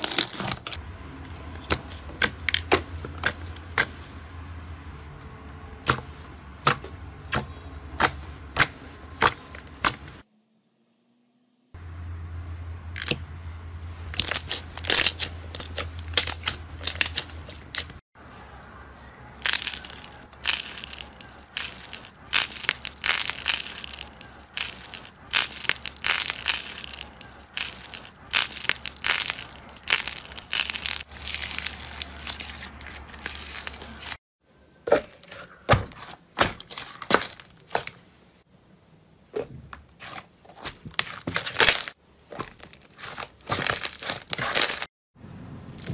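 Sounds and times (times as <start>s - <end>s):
slime popping and squelching: 19.4s - 34.2s.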